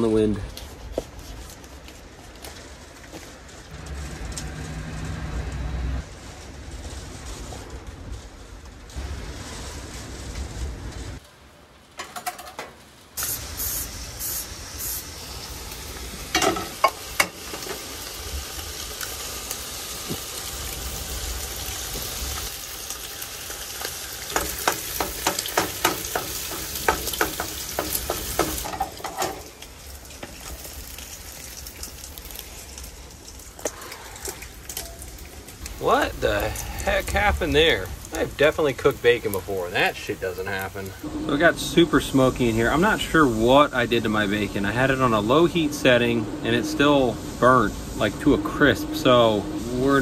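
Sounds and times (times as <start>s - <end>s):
bacon sizzling in a pan: 13.2s - 46.0s
low rumble: 35.6s - 39.5s.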